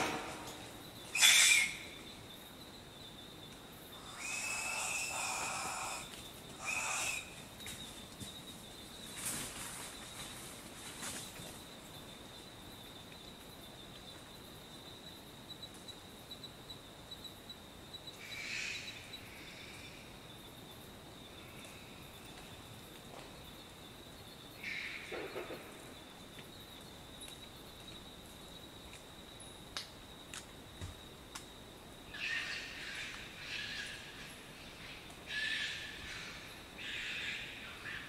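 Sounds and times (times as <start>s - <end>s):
high-pitched insect trill: 0.0s - 38.0s
possum calling wheezy calls: 1.1s - 2.0s, 4.0s - 7.5s.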